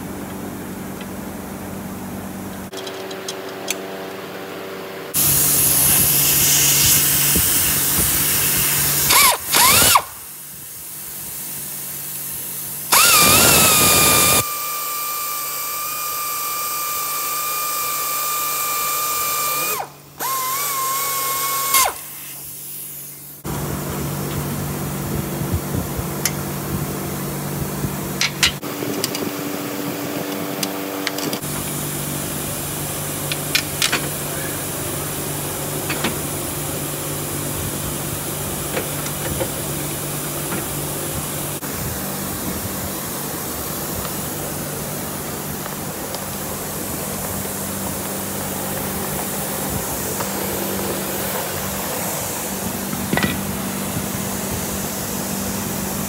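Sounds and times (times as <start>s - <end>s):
power tool motor whine: 5.1s - 10.2s, 12.9s - 22.6s.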